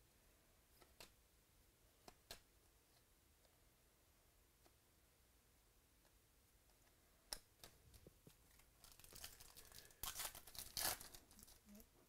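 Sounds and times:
foil wrapper tearing and crinkling: 8.8s - 11.6s.

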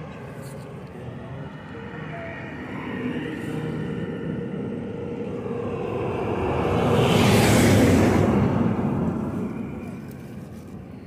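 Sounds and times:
motor vehicle passing by: 2.8s - 10.6s.

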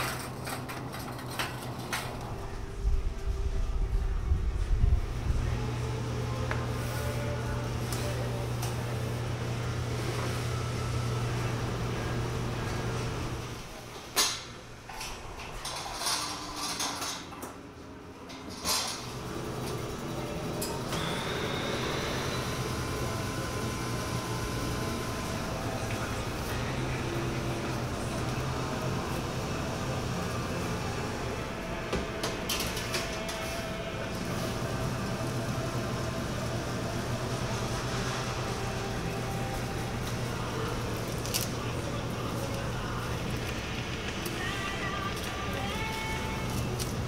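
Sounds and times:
metal pans and rack clattering: 0.0s - 2.2s
steady machine noise: 18.9s - 47.0s.

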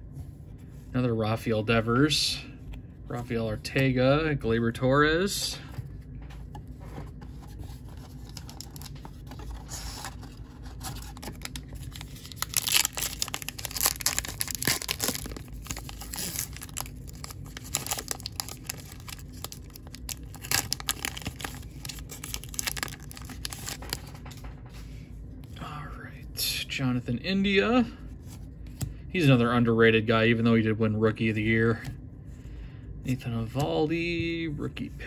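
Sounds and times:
plastic wrapper tearing and crinkling: 7.8s - 24.2s.

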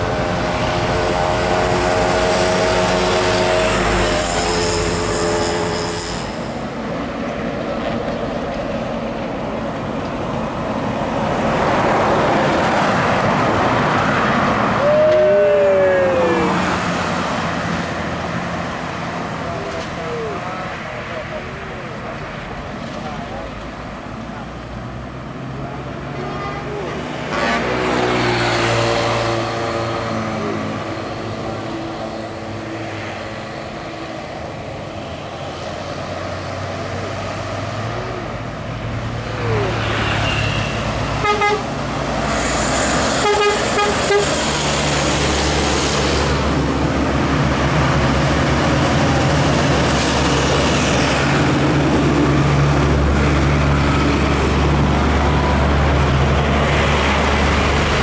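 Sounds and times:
trucks and buses passing: 0.0s - 58.0s
bus horn repeated notes: 1.1s - 6.5s, 41.2s - 41.7s, 43.2s - 44.4s
vehicle horns tooting: 1.3s - 6.6s, 40.2s - 41.7s, 43.2s - 44.4s
diesel bus engine running: 40.8s - 58.0s.

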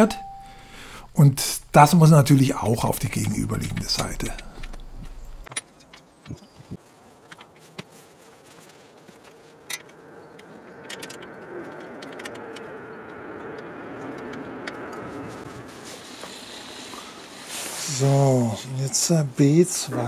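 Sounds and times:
hand tools clicking on metal rail: 9.6s - 12.7s.

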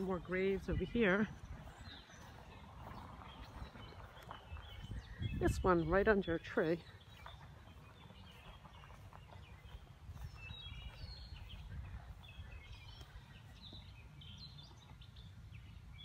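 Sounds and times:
low outdoor rumble: 0.0s - 16.0s
small birds chirping: 0.0s - 16.0s.

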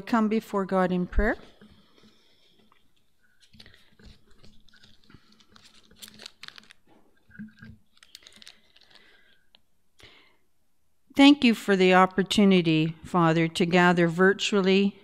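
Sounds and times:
paper pages turning: 1.4s - 9.6s.

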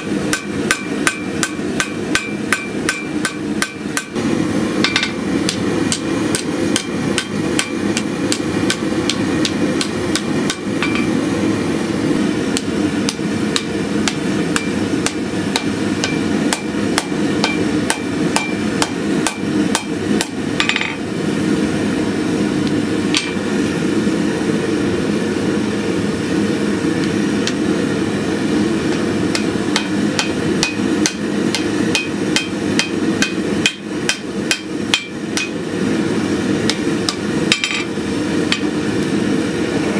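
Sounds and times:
hammer striking hot steel on anvil: 0.0s - 4.2s, 4.8s - 11.1s, 12.5s - 21.1s, 23.1s - 23.4s, 28.9s - 35.7s, 36.6s - 39.1s.

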